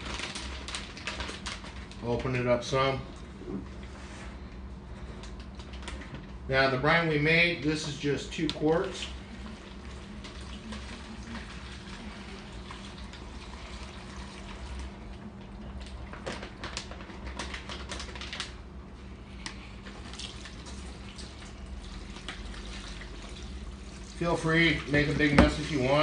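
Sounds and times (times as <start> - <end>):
plastic bag crinkling: 0.0 - 3.0, 15.8 - 18.6
liquid splashing: 9.1 - 15.1, 19.8 - 26.0.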